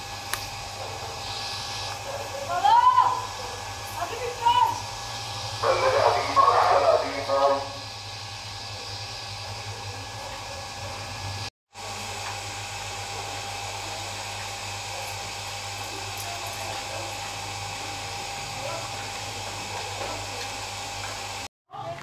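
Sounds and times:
machine hum and hiss: 0:00.0 - 0:21.5.

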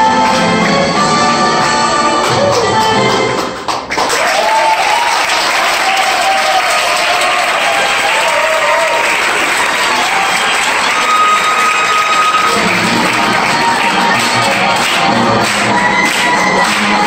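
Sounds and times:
band playing: 0:00.0 - 0:03.7, 0:10.9 - 0:17.0
audience applauding: 0:02.1 - 0:17.0.

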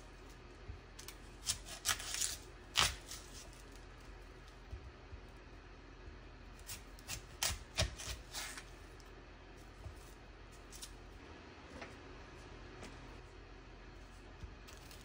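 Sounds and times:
knife crunching through onion: 0:01.0 - 0:03.8, 0:06.6 - 0:09.0.

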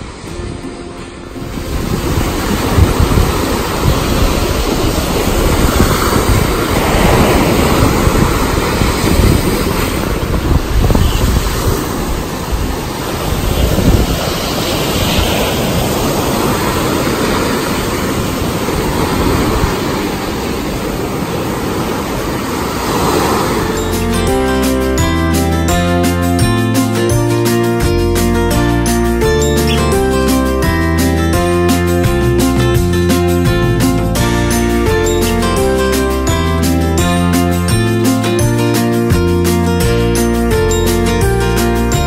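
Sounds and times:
wind buffeting microphone: 0:00.0 - 0:24.6
small waves breaking on shore: 0:00.0 - 0:25.0.

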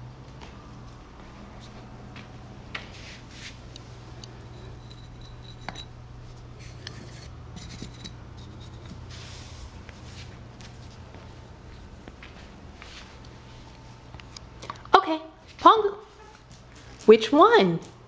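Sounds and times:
low hum: 0:00.0 - 0:16.8
ceramic pots clinking: 0:04.2 - 0:06.0, 0:06.6 - 0:09.0.

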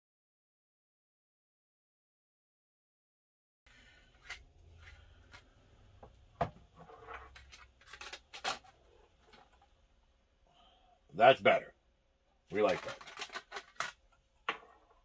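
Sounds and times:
plastic parts rubbing and scraping: 0:04.1 - 0:05.7, 0:06.5 - 0:09.8, 0:12.5 - 0:15.0.

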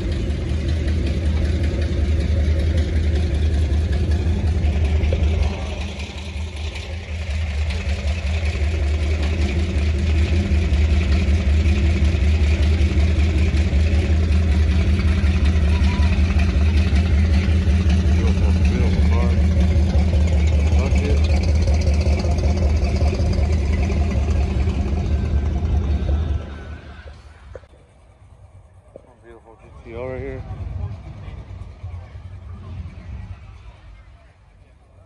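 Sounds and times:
car engines exhaust rumble: 0:00.0 - 0:35.0
crowd voices: 0:12.0 - 0:21.4, 0:23.5 - 0:35.0.

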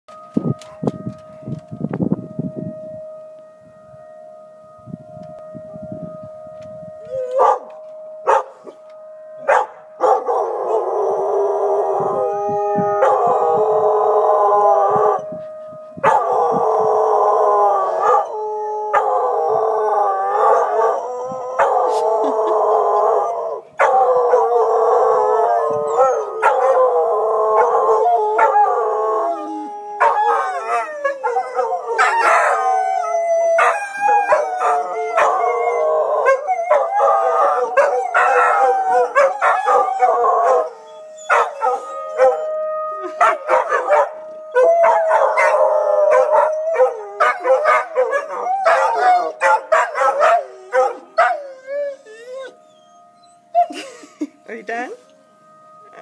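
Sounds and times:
dogs howling together: 0:09.4 - 0:15.3, 0:16.0 - 0:53.9.

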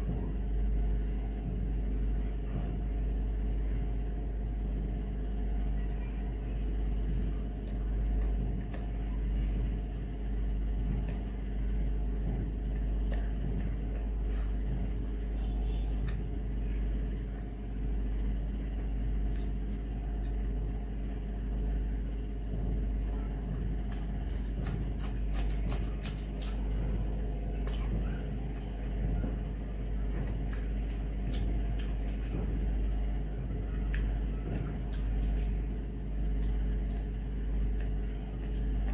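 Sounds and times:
low rumble with hum: 0:00.0 - 0:38.9
chewing: 0:07.0 - 0:21.0, 0:22.9 - 0:32.8, 0:33.7 - 0:38.9.

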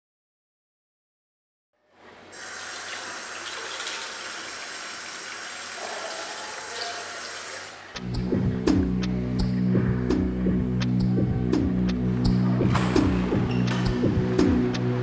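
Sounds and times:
tap water running into washbasin: 0:02.3 - 0:08.0.

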